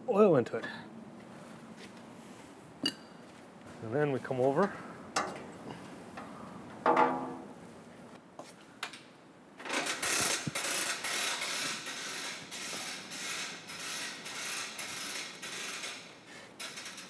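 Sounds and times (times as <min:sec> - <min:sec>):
hose reel ratchet clicking: 0:09.7 - 0:17.0.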